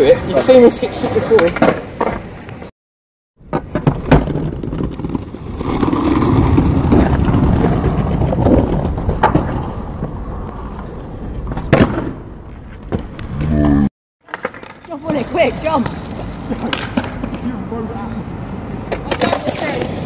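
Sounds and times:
skateboard wheels rolling on concrete: 0:00.0 - 0:02.7, 0:03.4 - 0:20.0
skateboard landing crack: 0:03.4 - 0:10.3, 0:11.4 - 0:13.3, 0:14.2 - 0:17.4, 0:18.9 - 0:20.0
skateboard clacking: 0:14.3 - 0:17.5, 0:18.8 - 0:20.0.

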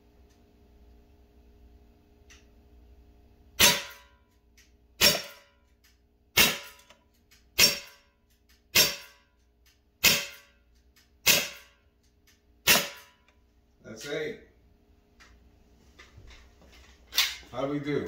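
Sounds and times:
air pistol shots: 0:03.6 - 0:04.2, 0:05.0 - 0:05.6, 0:06.3 - 0:07.0, 0:07.6 - 0:08.1, 0:08.7 - 0:09.2, 0:10.0 - 0:10.6, 0:11.2 - 0:11.8, 0:12.6 - 0:13.3.

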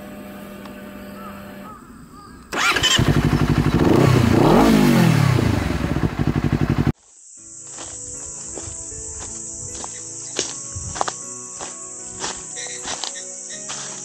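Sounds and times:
motorcycle engine starting and revving: 0:02.5 - 0:07.0.

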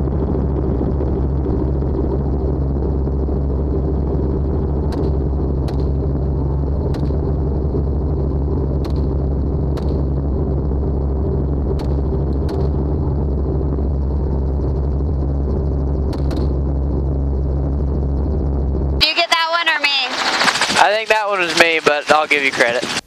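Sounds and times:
helicopter engine and rotor drone: 0:00.0 - 0:23.0.

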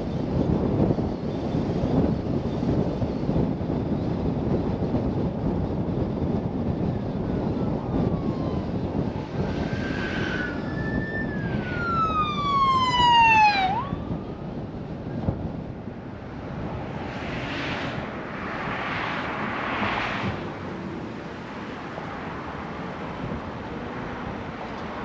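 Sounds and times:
road and wind noise: 0:00.0 - 0:25.0
emergency vehicle siren passing: 0:06.8 - 0:25.0.

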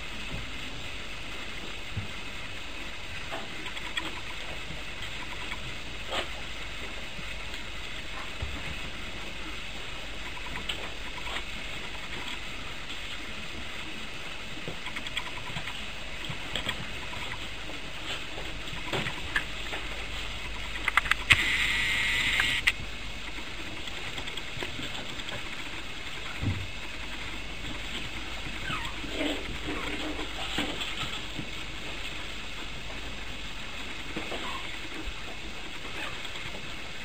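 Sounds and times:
steady background hiss: 0:00.0 - 0:37.0
puppies tapping and scuffling: 0:14.6 - 0:21.3, 0:23.6 - 0:33.2, 0:33.8 - 0:36.8
loud noisy burst: 0:21.0 - 0:22.8.

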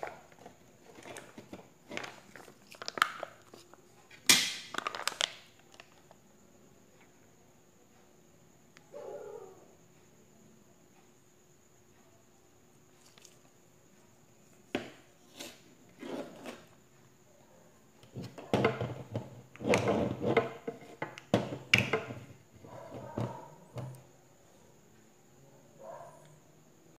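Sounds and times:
packaging rustling and clatter: 0:00.0 - 0:03.8, 0:04.7 - 0:06.2.

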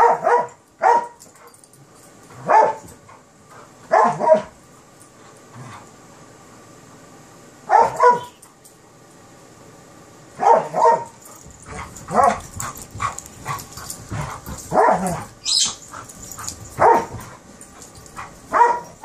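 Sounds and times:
dogs barking and yipping: 0:00.0 - 0:01.6, 0:07.7 - 0:08.4, 0:10.4 - 0:19.0.

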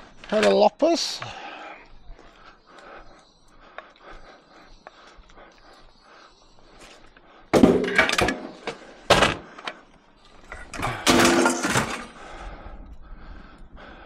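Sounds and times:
handling scrap metal: 0:07.6 - 0:09.4, 0:10.7 - 0:12.2
scrap metal clanging: 0:11.1 - 0:12.2.

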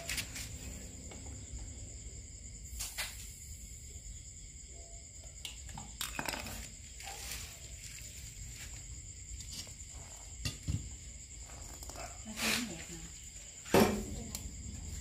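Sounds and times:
knocks and scrapes on concrete: 0:00.0 - 0:01.4, 0:05.8 - 0:15.0.

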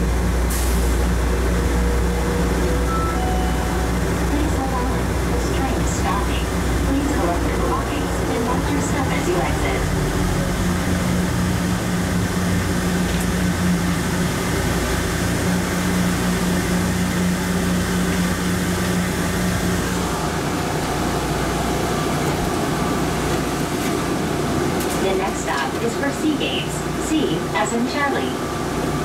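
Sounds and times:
train rumbling in tunnel: 0:00.0 - 0:29.0.

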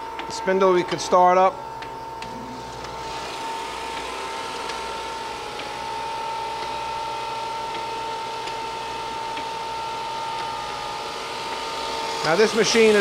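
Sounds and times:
grinder humming and whining: 0:00.0 - 0:13.0.

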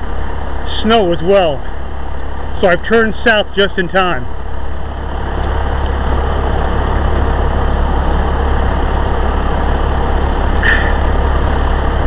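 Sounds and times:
fire vehicle engine: 0:00.0 - 0:12.0.

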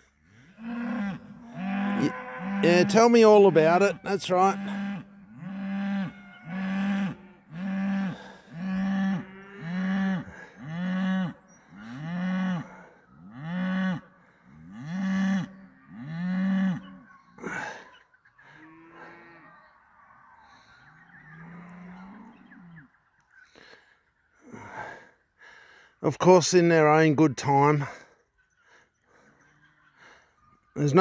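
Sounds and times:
cow mooing: 0:00.3 - 0:17.8, 0:18.5 - 0:22.9.

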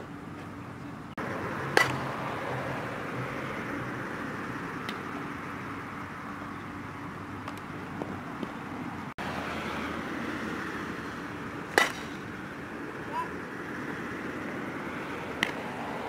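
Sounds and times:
distant traffic hum: 0:00.0 - 0:16.0
outdoor background hiss: 0:00.0 - 0:16.0
bat hitting ball crack: 0:01.7 - 0:02.2, 0:11.6 - 0:13.1, 0:15.3 - 0:15.7.

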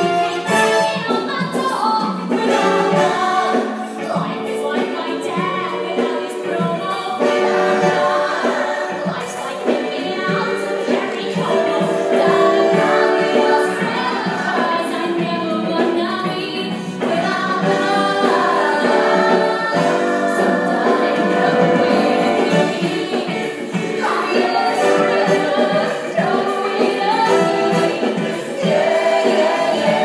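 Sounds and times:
singers with band: 0:00.0 - 0:30.0.

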